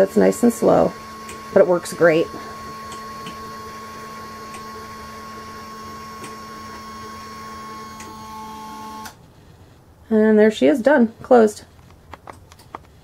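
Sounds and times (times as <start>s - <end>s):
small electric motor humming: 0.0s - 9.1s.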